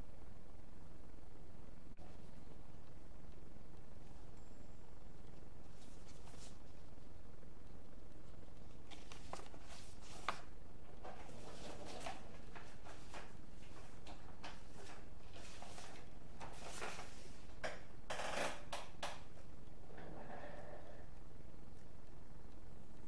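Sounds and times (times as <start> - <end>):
paper rustling and crinkling: 5.6 - 7.0, 8.4 - 17.6.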